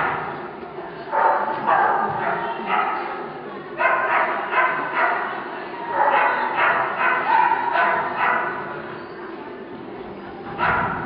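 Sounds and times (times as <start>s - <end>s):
dog barking: 1.1s - 3.1s, 3.8s - 5.3s, 5.9s - 8.6s, 10.6s - 11.0s.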